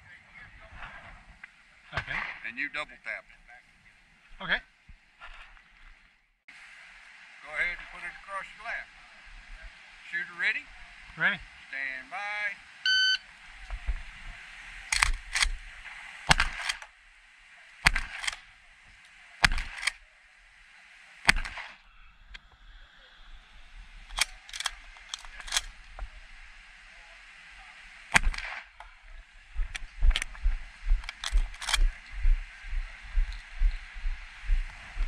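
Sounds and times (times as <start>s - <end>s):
shotgun shots: 2.0s - 2.4s, 14.9s - 15.6s, 16.3s - 16.9s, 17.8s - 18.6s, 19.4s - 20.0s, 21.2s - 21.8s, 28.1s - 28.8s.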